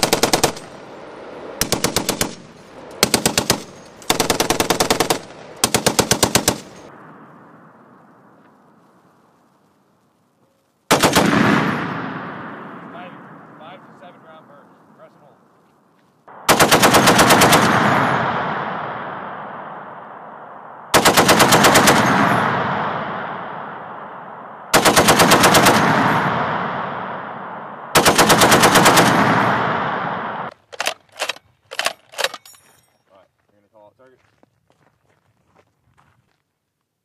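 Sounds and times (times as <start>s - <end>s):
heavy machine gun bursts: 0.0s - 0.8s, 1.6s - 6.8s
gunfire echo: 10.9s - 15.4s, 16.3s - 31.0s
sharp clicks: 30.5s - 32.5s.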